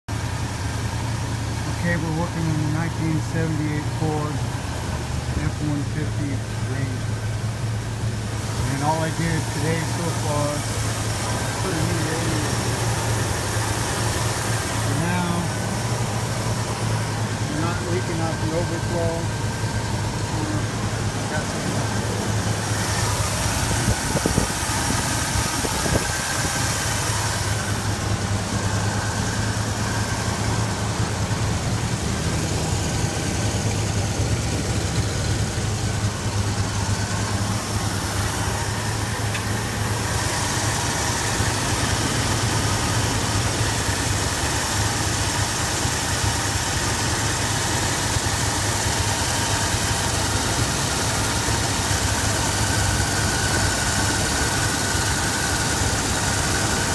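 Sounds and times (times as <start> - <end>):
truck engine idling: 0.1 - 56.9.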